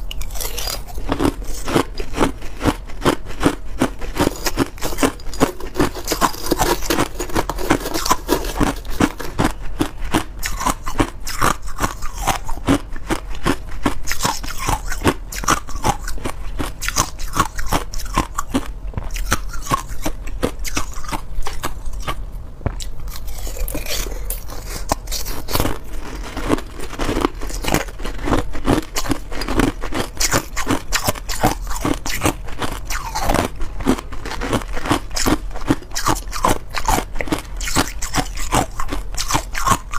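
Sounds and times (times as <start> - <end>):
crunching ice between teeth: 0.0 - 22.2, 22.8 - 39.9
metal spoon scraping ice in tub: 4.1 - 9.5.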